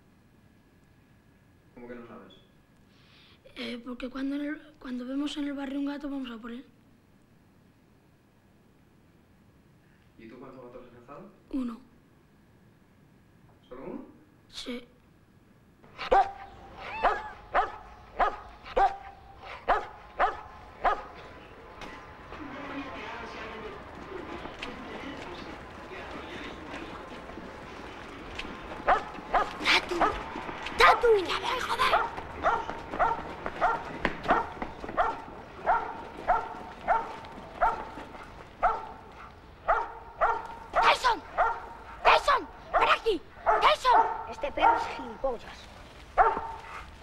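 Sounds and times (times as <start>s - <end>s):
dog barking: 15.9s - 22.0s, 28.8s - 31.2s, 31.8s - 45.4s, 46.2s - 47.0s.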